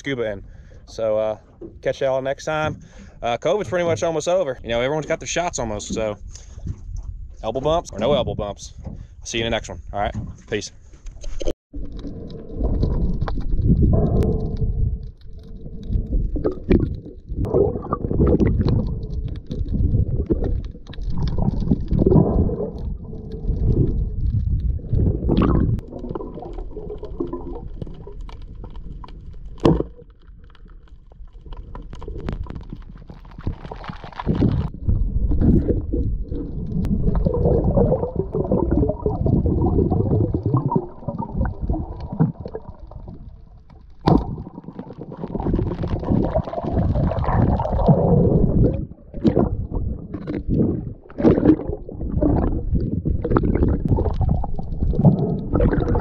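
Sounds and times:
muffled underwater gurgling: 0:11.4 - 0:30.0, 0:33.4 - 0:56.0.

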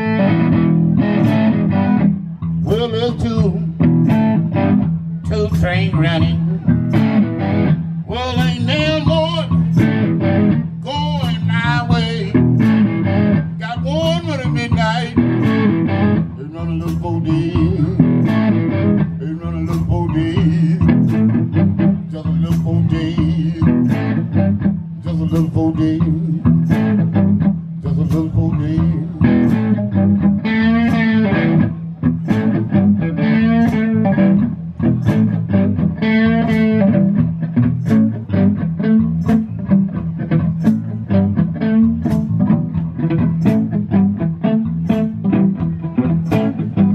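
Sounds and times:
electric bass line: 0:00.0 - 0:46.9
electric blues band playing: 0:00.0 - 0:46.9
lead electric guitar with vibrato: 0:00.0 - 0:46.9
steady kick drum beat: 0:00.5 - 0:46.9.

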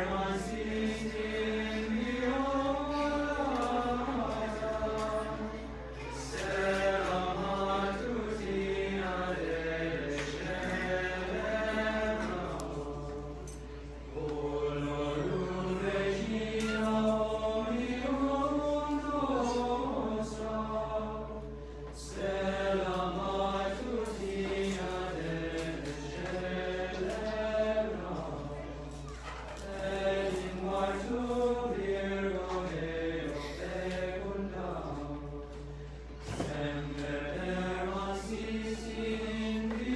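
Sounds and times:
men's choir singing a cappella: 0:00.0 - 0:39.9.

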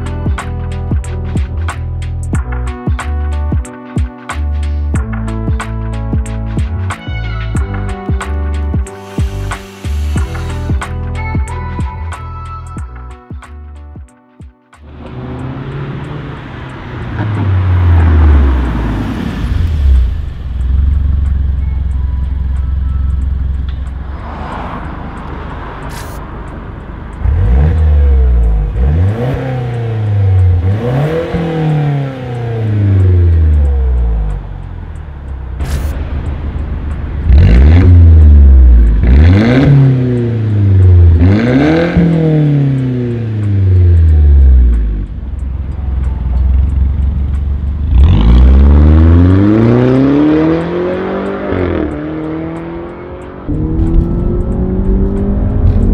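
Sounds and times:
car engine idling and revving: 0:00.0 - 0:14.0, 0:14.8 - 0:55.9
car driving past: 0:24.0 - 0:26.5, 0:47.9 - 0:55.9.

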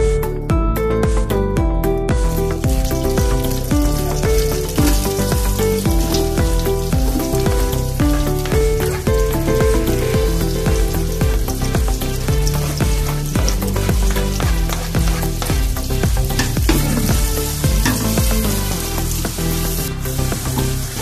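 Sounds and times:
background music with bass: 0:00.0 - 0:21.0
onions sizzling in hot oil: 0:02.6 - 0:21.0
stirring in a metal pot: 0:02.8 - 0:21.0.

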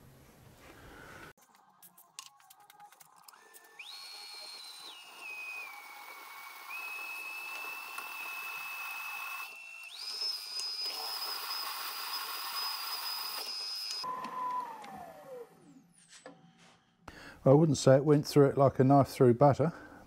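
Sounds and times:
drill whistling through steel: 0:03.3 - 0:16.5.

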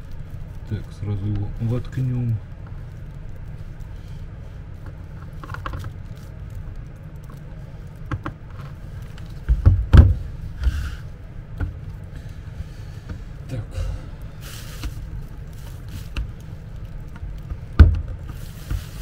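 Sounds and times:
plastic clicks and knocks: 0:08.1 - 0:08.6, 0:17.1 - 0:18.8.

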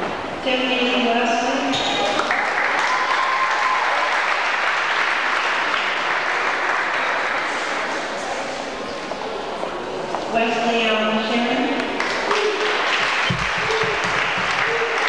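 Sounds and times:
audience applauding: 0:02.0 - 0:08.4, 0:11.9 - 0:15.0.

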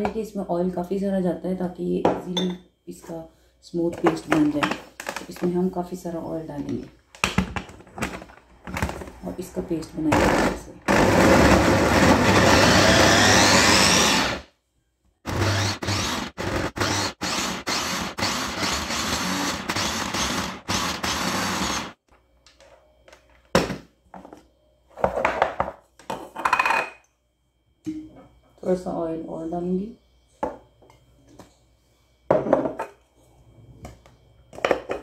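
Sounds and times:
electric chopper grinding: 0:10.2 - 0:14.4, 0:15.3 - 0:22.0.

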